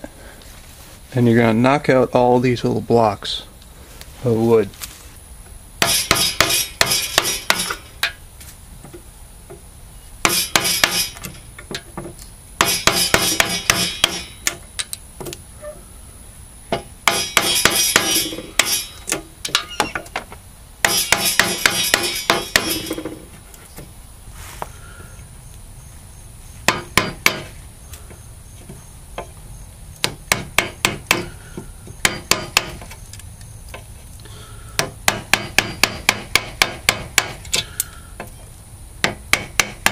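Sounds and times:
wooden mallet striking chisel: 0:05.8 - 0:08.2, 0:10.2 - 0:11.8, 0:12.6 - 0:14.6, 0:16.7 - 0:20.2, 0:20.8 - 0:23.2, 0:26.7 - 0:27.5, 0:30.0 - 0:32.9, 0:34.8 - 0:37.7, 0:39.0 - 0:39.9.

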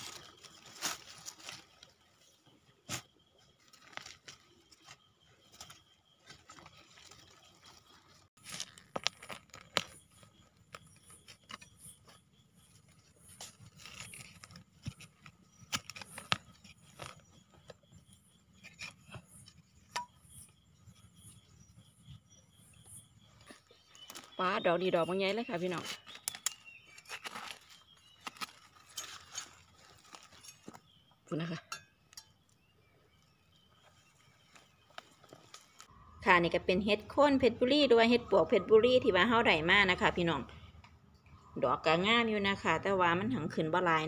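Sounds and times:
hands rustling dry leaves: 0:00.0 - 0:02.3, 0:25.3 - 0:30.8
scraping and digging soil: 0:00.0 - 0:35.9.

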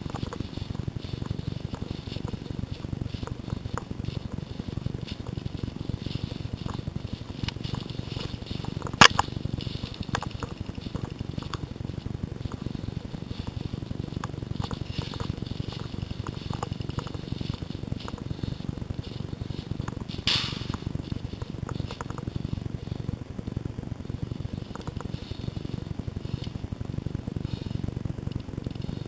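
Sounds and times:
twigs snapping: 0:00.0 - 0:23.1
footsteps crunching dry leaves: 0:00.0 - 0:29.0
low microphone rumble: 0:00.0 - 0:29.0.

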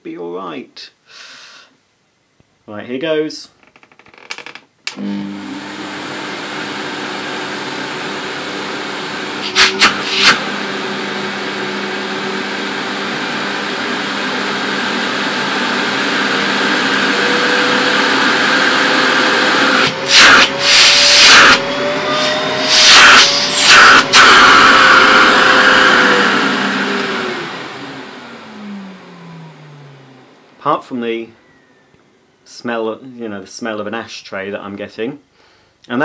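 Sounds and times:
vacuum cleaner motor running: 0:04.9 - 0:30.6.

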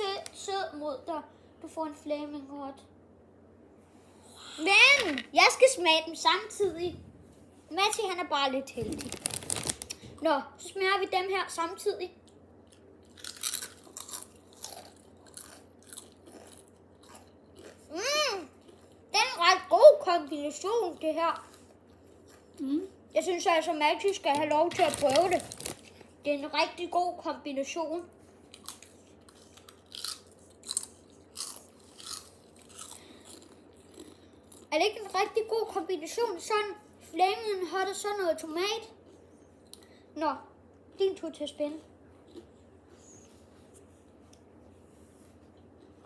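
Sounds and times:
crisps crunching and chewing: 0:09.0 - 0:10.0, 0:12.2 - 0:19.1, 0:20.9 - 0:22.7, 0:24.0 - 0:26.2, 0:28.4 - 0:35.2, 0:45.4 - 0:46.0.

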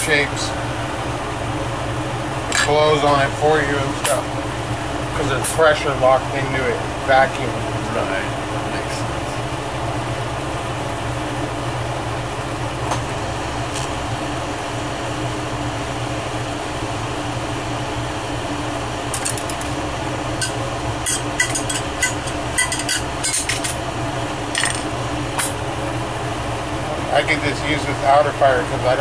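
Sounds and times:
tools clicking and clinking: 0:19.1 - 0:19.8, 0:20.4 - 0:23.8, 0:24.5 - 0:25.6.

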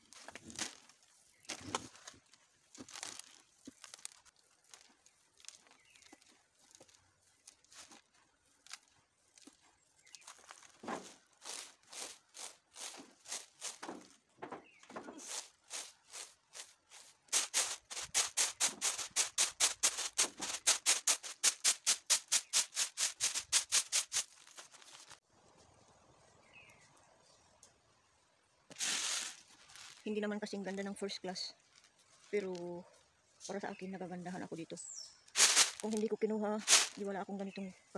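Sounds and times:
beans rattling in bamboo tray: 0:10.2 - 0:14.0, 0:15.2 - 0:25.2, 0:35.4 - 0:37.1
faint rustling: 0:28.7 - 0:30.6.

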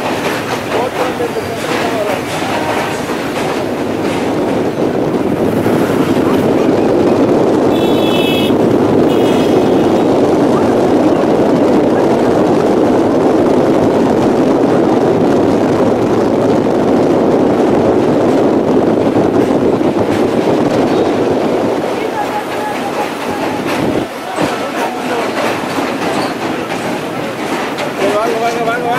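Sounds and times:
train rumbling slowly: 0:00.0 - 0:28.9
wind: 0:00.0 - 0:28.9.

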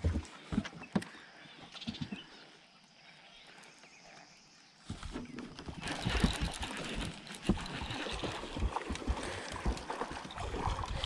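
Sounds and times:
water lapping against hull: 0:04.8 - 0:11.0.

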